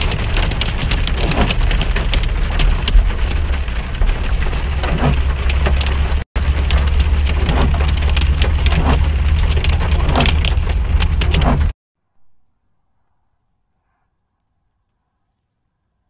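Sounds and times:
rain pattering on windshield: 0.0 - 11.7
car low rumble: 0.0 - 11.8.

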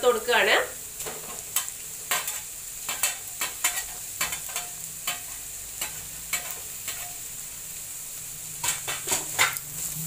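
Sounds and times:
vegetables sizzling in oil: 0.0 - 10.0
metal spatula scraping pan: 8.6 - 10.0.

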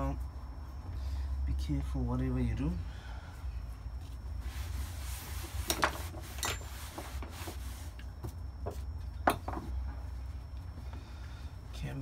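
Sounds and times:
steady low hum: 0.0 - 12.0
rag rubbing: 4.0 - 8.8.

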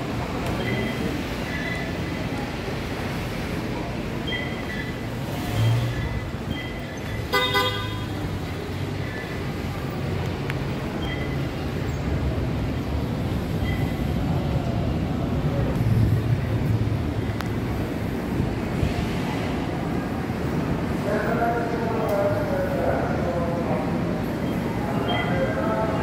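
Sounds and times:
street traffic rumble: 0.0 - 26.0
vehicle horn honk: 7.3 - 8.2.

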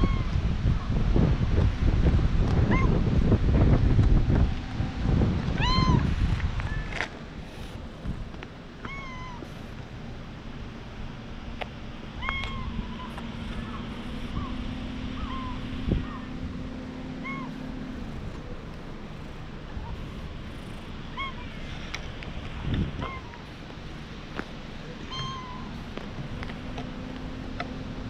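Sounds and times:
cat meowing: 5.6 - 6.0, 8.8 - 9.4, 12.2 - 14.5, 17.2 - 17.6, 25.0 - 25.7.

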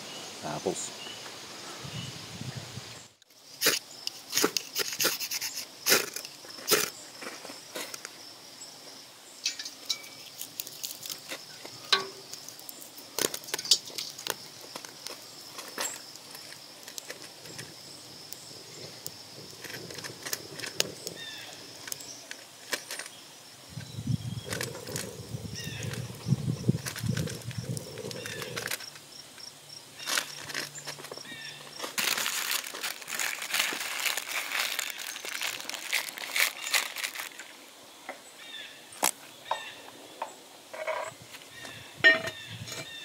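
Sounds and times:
dry leaves and twigs crackling: 3.2 - 8.4, 9.3 - 37.6.

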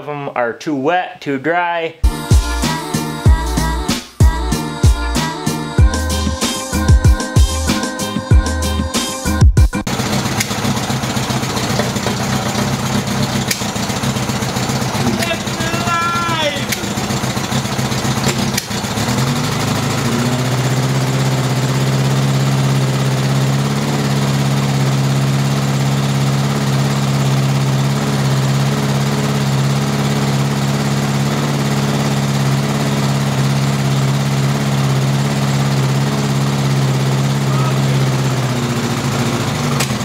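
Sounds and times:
motorcycle engine idling: 9.9 - 40.0
sharp engine knock: 16.6 - 19.2, 38.3 - 40.0.

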